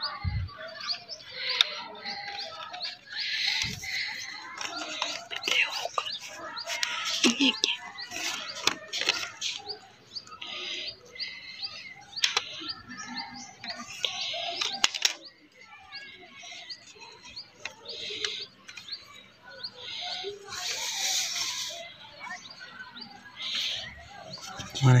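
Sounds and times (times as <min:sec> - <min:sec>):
small birds chirping: 0:00.0 - 0:25.0
paper rustling and crinkling: 0:03.6 - 0:07.4.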